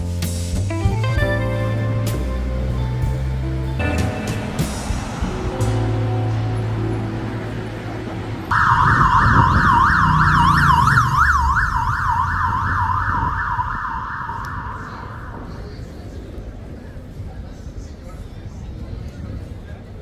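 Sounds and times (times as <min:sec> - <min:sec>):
low street traffic rumble: 0:00.0 - 0:20.0
emergency siren yelping: 0:04.5 - 0:16.1.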